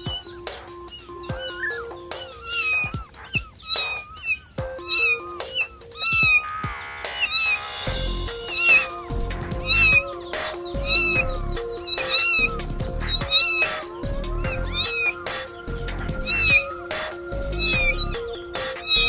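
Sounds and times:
kitten mewing: 1.0 - 6.6, 9.6 - 10.0, 10.8 - 15.2, 16.2 - 16.7, 17.5 - 18.1.

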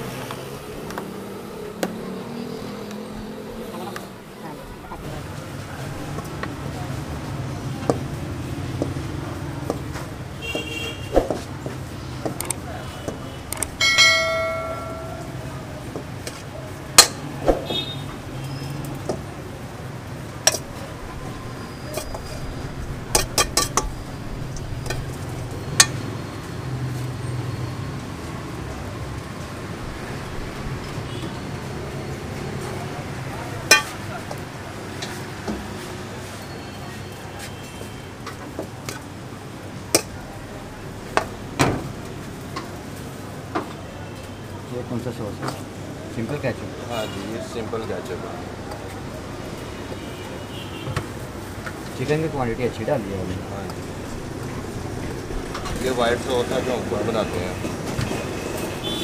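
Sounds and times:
spatula clanging on steel bowl: 23.1 - 23.9, 33.7 - 34.0.

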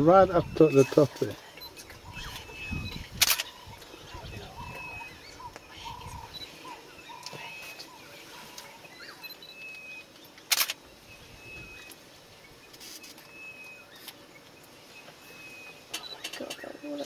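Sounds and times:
faint bush ambience: 0.0 - 17.0
bird whistling: 1.6 - 3.1, 11.2 - 12.0.

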